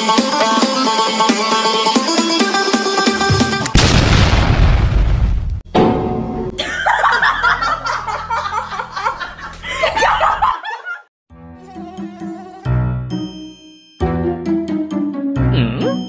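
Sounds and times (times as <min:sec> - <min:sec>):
background music: 0:00.0 - 0:03.8, 0:11.3 - 0:16.0
loud blast sound effect: 0:03.7 - 0:06.6
laughter: 0:06.6 - 0:11.1.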